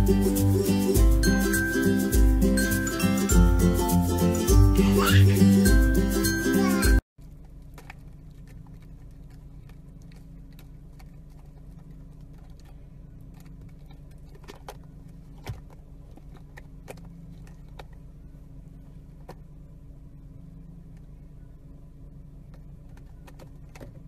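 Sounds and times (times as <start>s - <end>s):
puppy chewing plastic straw: 7.2s - 18.0s.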